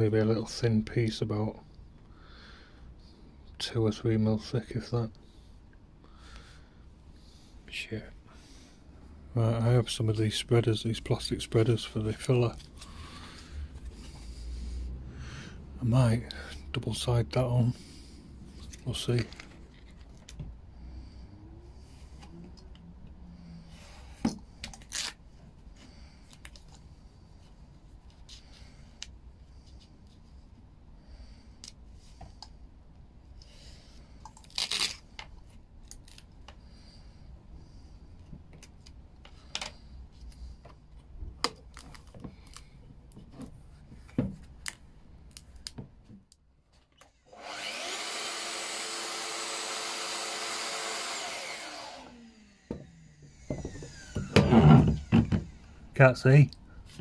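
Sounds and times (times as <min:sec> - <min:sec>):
power tool motor running: 0:47.3 - 0:55.6.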